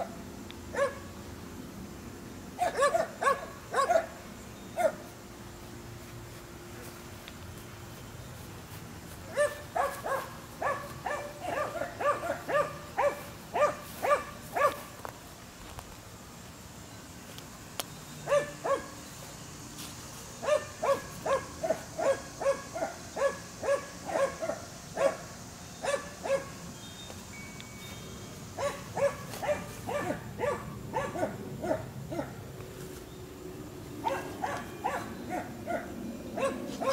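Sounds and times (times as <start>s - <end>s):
dog barking: 0.7s - 1.0s, 2.6s - 4.2s, 4.8s - 5.0s, 9.3s - 14.9s, 18.3s - 18.9s, 20.4s - 25.2s, 25.8s - 26.5s, 28.6s - 32.4s, 34.0s - 36.9s.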